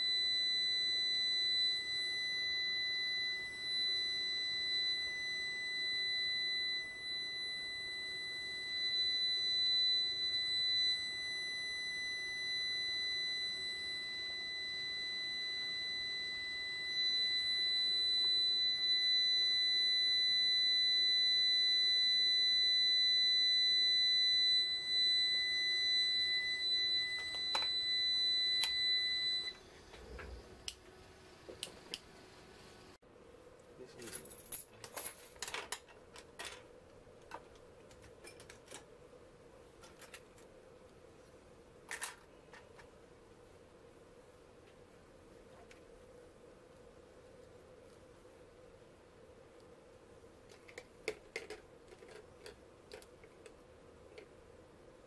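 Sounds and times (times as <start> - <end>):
high-pitched electronic buzzer tone: 0.0 - 30.2.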